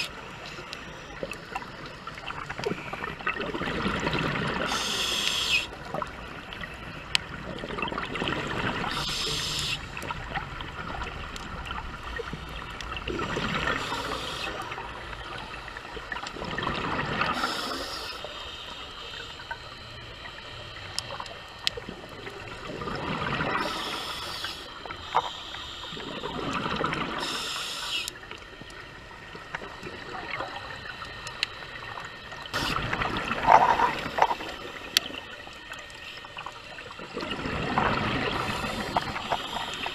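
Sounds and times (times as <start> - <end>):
gurgling bubble bursts: 2.6 - 4.7, 16.3 - 17.4, 32.5 - 35.2, 37.0 - 39.7
regulator breathing underwater: 4.6 - 5.8, 8.8 - 9.9, 13.6 - 14.8, 17.2 - 19.6, 23.4 - 28.2, 37.8 - 39.9.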